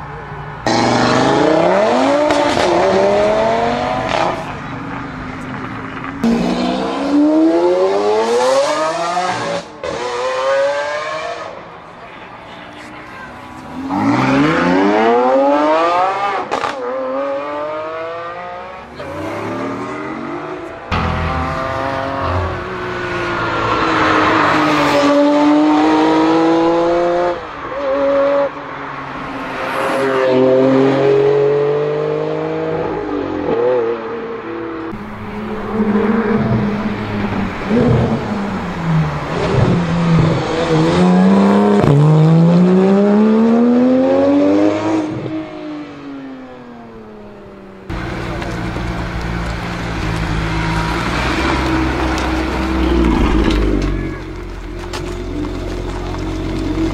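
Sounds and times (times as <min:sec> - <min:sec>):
supercar engines accelerating: 0:00.6 - 0:11.6.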